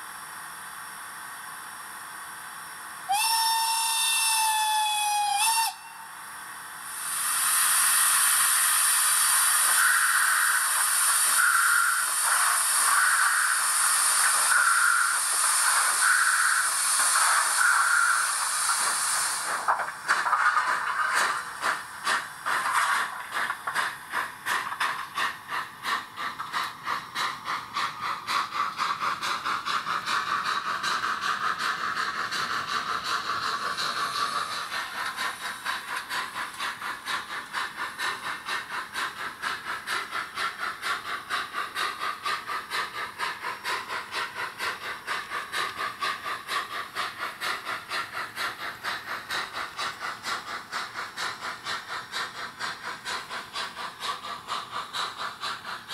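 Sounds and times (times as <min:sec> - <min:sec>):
continuous steam hiss: 0:00.0 - 0:55.9
steam locomotive exhaust chuffs: 0:00.0 - 0:55.9.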